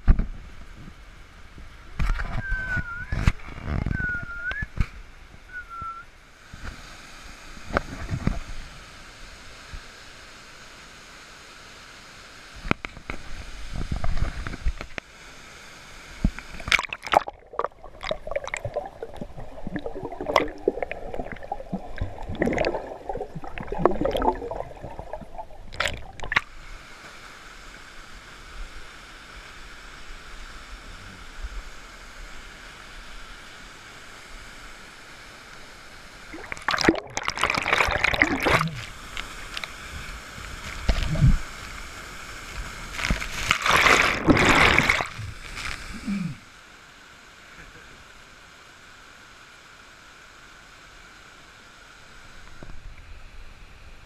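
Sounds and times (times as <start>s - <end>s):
falling water rushing: 15.2s - 30.8s, 31.6s - 48.3s
stream rushing: 15.3s - 30.7s, 32.3s - 46.1s
water sloshing and gurgling: 16.3s - 26.6s, 36.2s - 41.9s, 42.5s - 46.2s
churning white water: 16.6s - 26.5s, 36.3s - 39.7s, 42.9s - 45.3s.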